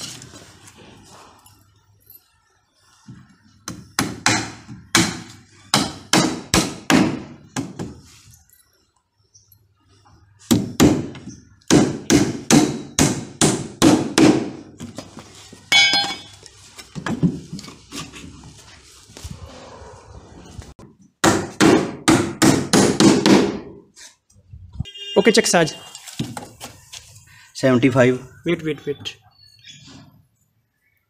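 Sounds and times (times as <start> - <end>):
metallic clink: 15.7 - 16.4
hammer driving nails into wood: 21.2 - 23.8.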